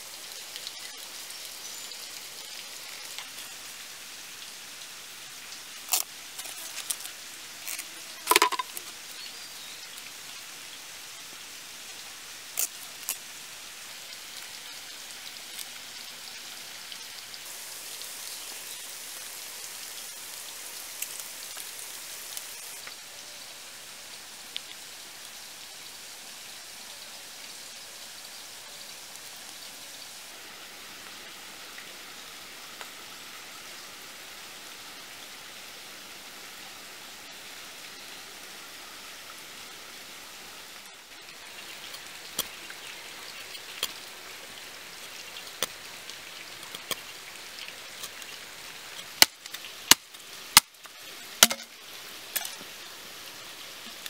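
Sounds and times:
steady hiss: 0.0s - 54.0s
bamboo strips snapping: 5.9s - 8.9s, 12.6s - 13.2s, 46.6s - 47.0s, 49.0s - 51.7s.

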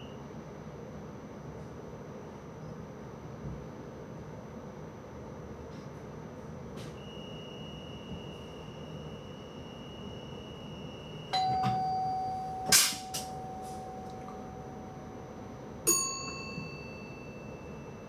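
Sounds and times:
electronic ding chime: 11.3s - 15.2s, 15.9s - 18.0s.

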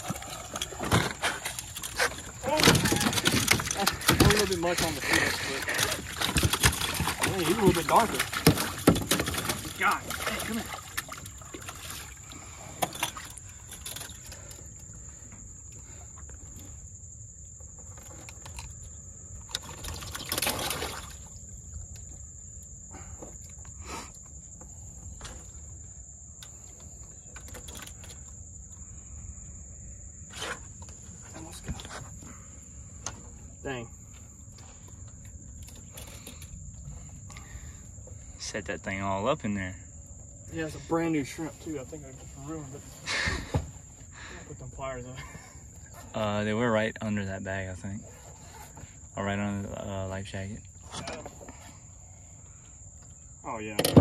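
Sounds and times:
fish scuffling on deck: 0.0s - 12.2s
insects droning: 0.0s - 54.0s.

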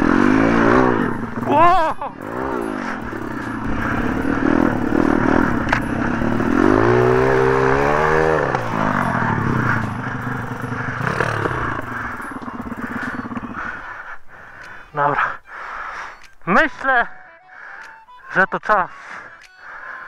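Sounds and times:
pit bike engine revving: 0.0s - 14.6s.

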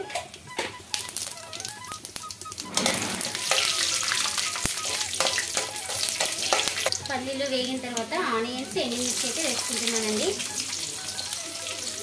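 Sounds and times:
spices sizzling in hot oil: 0.3s - 12.0s
ladle stirring: 2.6s - 7.0s.

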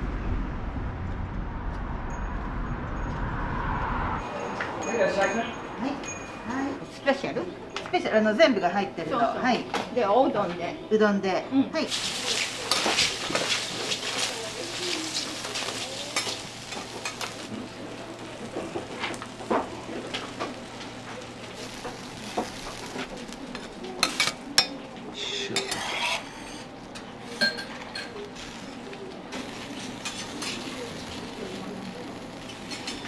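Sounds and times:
food sizzling on a griddle: 11.9s - 24.7s, 25.6s - 33.0s
metal spatulas scraping: 25.5s - 26.7s.

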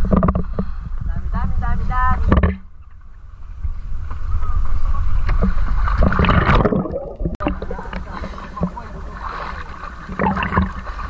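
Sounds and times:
water sloshing and splashing: 2.2s - 11.0s.

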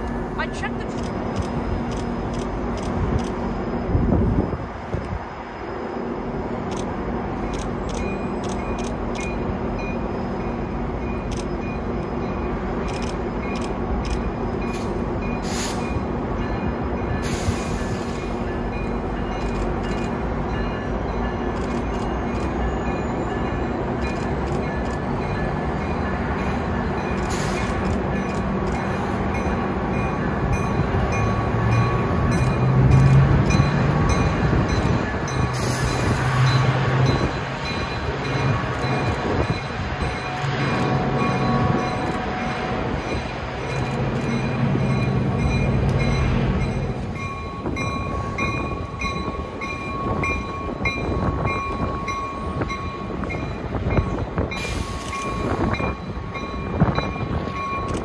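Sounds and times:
diesel locomotive engine rumble: 0.0s - 58.0s.

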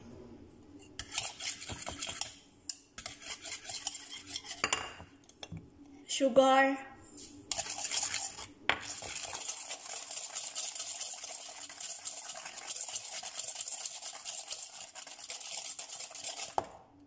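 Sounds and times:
whisk scraping metal bowl: 1.0s - 2.4s, 3.0s - 4.8s, 7.5s - 16.6s.

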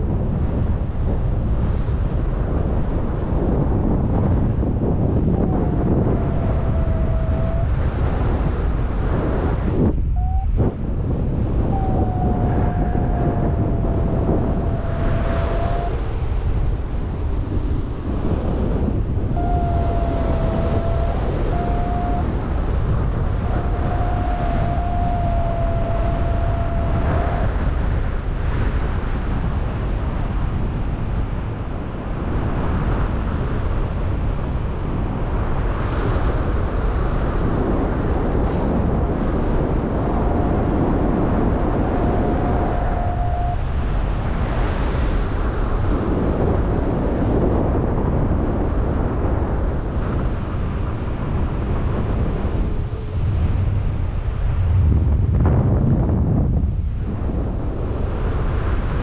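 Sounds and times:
gusty wind buffeting microphone: 0.0s - 59.0s
steady high tone: 11.7s - 16.3s, 19.3s - 27.6s.

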